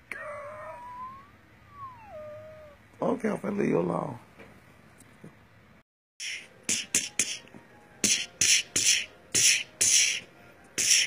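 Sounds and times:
person beatboxing: 6.2s - 11.0s.

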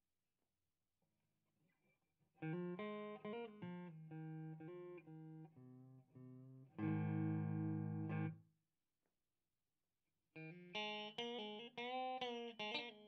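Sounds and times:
electric guitar chord strummed: 2.4s - 8.4s
electric guitar notes: 2.4s - 8.4s.

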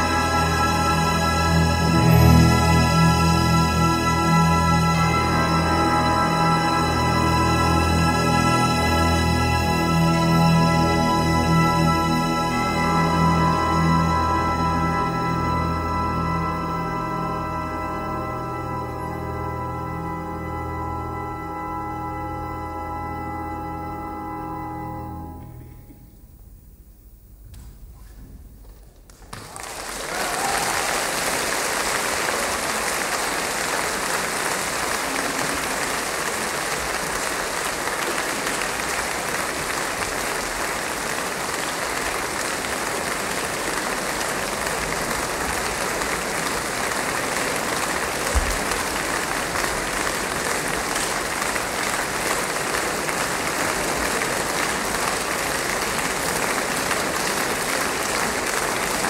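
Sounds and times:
audience applauding: 29.1s - 59.0s.

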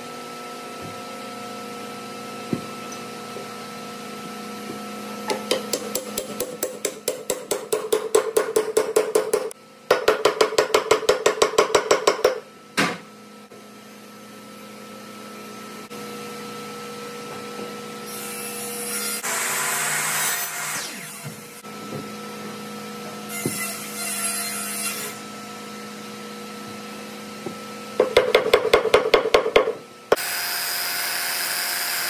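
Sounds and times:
hammer striking wooden bat: 5.3s - 12.4s
miter saw cut: 18.5s - 21.6s, 30.2s - 32.0s.

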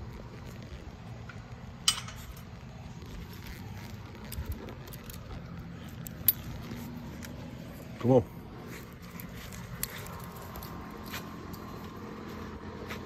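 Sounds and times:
leash hook clinking metal: 4.2s - 7.3s, 9.1s - 11.9s.

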